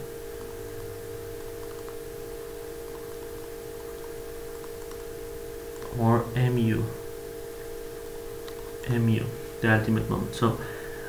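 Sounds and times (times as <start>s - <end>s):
electrical mains hum: 0.0s - 11.0s.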